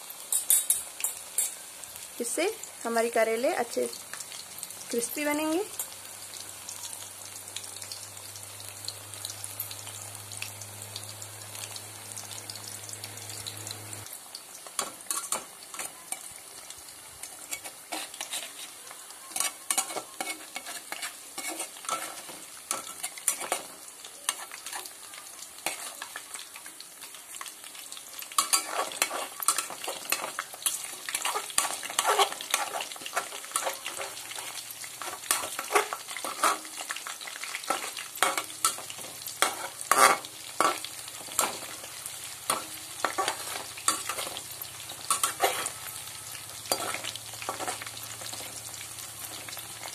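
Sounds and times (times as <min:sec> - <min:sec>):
slices deep-frying in sizzling oil: 0:00.0 - 0:49.9
metal spoon scraping pan: 0:00.3 - 0:01.6, 0:17.4 - 0:23.7, 0:28.3 - 0:36.9, 0:37.6 - 0:41.8, 0:42.5 - 0:44.4, 0:45.0 - 0:46.0, 0:46.7 - 0:48.5.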